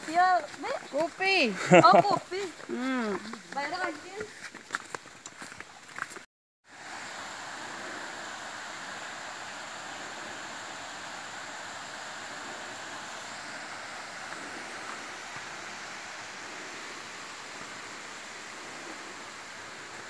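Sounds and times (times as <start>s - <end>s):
waterfall rushing: 6.7s - 20.0s.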